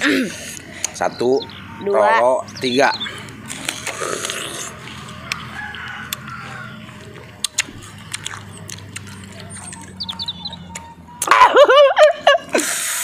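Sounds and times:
biting and chewing fruit: 0:03.0 - 0:11.4
rooster crowing: 0:04.7 - 0:07.2.

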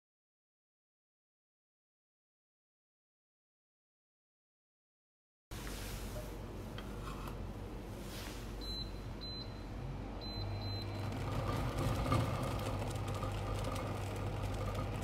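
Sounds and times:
faint electrical hum: 0:05.5 - 0:15.0.

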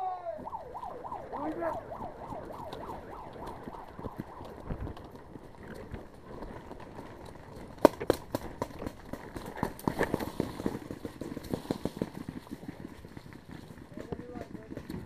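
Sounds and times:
wavering siren: 0:00.0 - 0:06.3.

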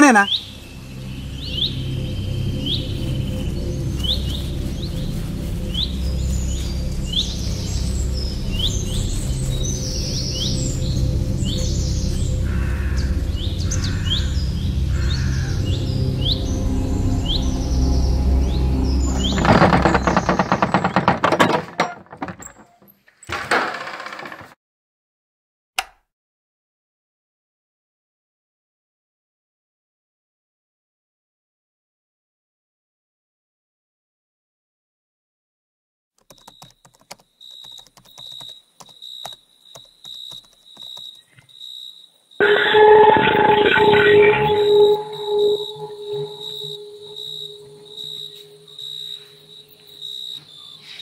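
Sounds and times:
sliding bolt clattering: 0:19.1 - 0:23.5
laptop keyboard typing: 0:36.2 - 0:41.2
high electronic beep: 0:42.4 - 0:48.7.

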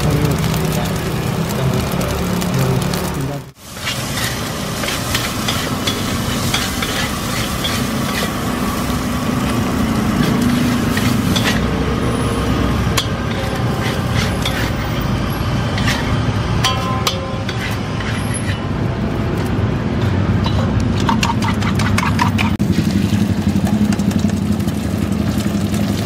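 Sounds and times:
rice sizzling in wok: 0:00.0 - 0:18.2, 0:22.6 - 0:26.0
low road traffic rumble: 0:00.0 - 0:26.0
spatula scraping wok: 0:02.8 - 0:18.8, 0:19.4 - 0:23.3.

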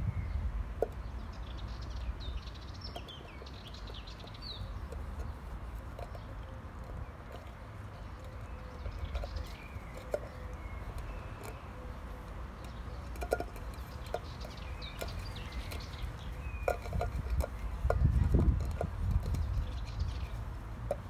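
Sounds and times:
birds chirping: 0:00.0 - 0:21.0
teeth and claws tapping tin can: 0:02.2 - 0:21.0.

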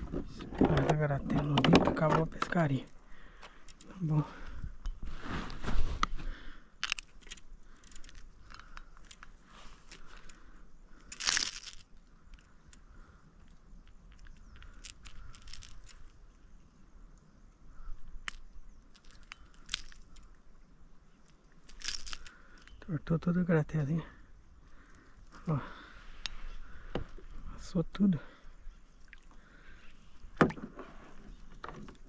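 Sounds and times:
fishing gear rustling: 0:00.0 - 0:16.5, 0:18.0 - 0:20.4, 0:21.0 - 0:22.8, 0:28.7 - 0:32.0
fishing gear clicking: 0:00.6 - 0:04.1, 0:06.7 - 0:16.2, 0:18.0 - 0:20.3, 0:21.2 - 0:22.8.

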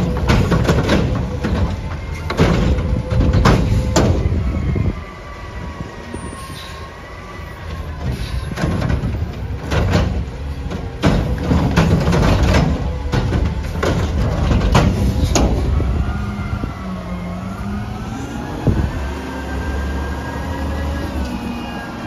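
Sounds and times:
metal clanks and bangs: 0:00.0 - 0:04.5, 0:07.8 - 0:16.0
diesel engine and hydraulics: 0:00.0 - 0:22.0.

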